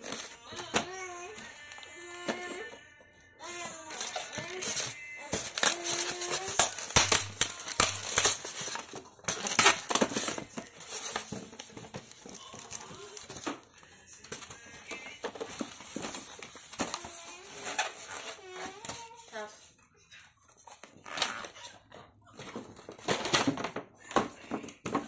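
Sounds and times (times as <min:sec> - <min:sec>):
packaging clicks and scrapes: 0:00.0 - 0:02.8, 0:03.4 - 0:19.6
plastic wrapping crinkling: 0:03.4 - 0:19.7.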